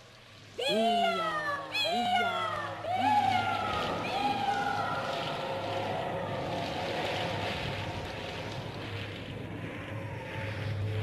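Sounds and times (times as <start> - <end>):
eerie wailing gliding tones: 0.5 - 11.0.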